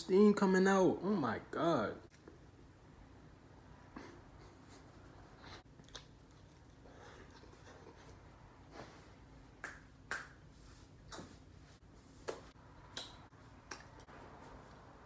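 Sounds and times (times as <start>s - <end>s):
finger snaps: 9.6s - 10.4s, 12.2s - 14.1s.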